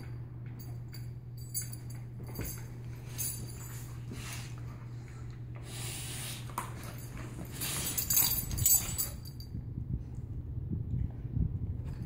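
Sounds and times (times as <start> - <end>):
steady low hum: 0.0 - 12.0
puppies scuffling on cushions: 2.0 - 9.4.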